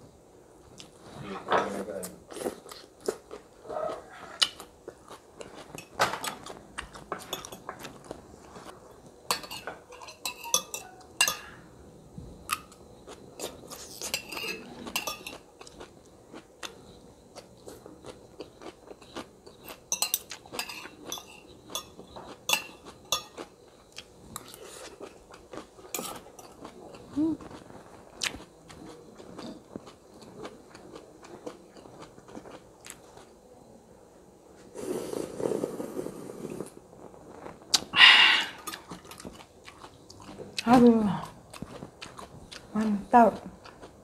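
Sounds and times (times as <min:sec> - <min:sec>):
metal spoon clinking on plate: 0:09.3 - 0:11.5, 0:14.1 - 0:15.4, 0:19.7 - 0:23.4
crunchy chewing: 0:12.5 - 0:33.3, 0:38.6 - 0:44.0.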